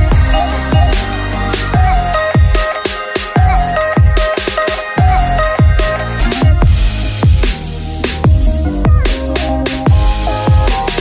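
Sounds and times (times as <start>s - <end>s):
deep kick drum: 0.0s - 1.1s, 5.0s - 11.0s
electronic dance music: 0.0s - 11.0s.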